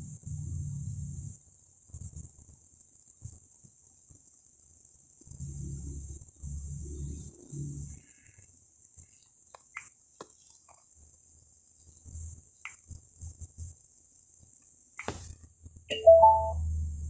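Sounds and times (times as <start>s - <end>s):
faint high hiss: 0.0s - 17.0s
fingers tapping touchscreen: 9.5s - 10.8s, 15.0s - 15.3s
music: 15.9s - 16.6s.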